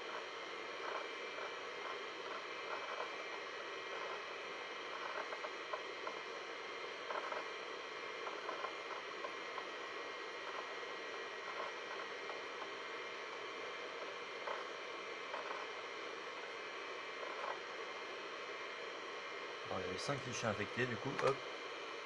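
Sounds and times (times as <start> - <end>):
hard drive clicking: 20.8 - 21.4.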